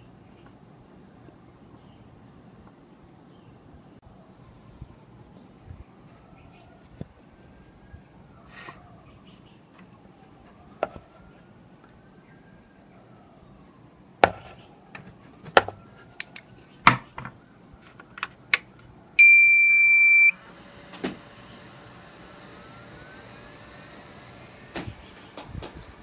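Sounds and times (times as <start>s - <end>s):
fan whirring: 17.7s - 26.0s
loud electronic beep: 19.2s - 20.4s.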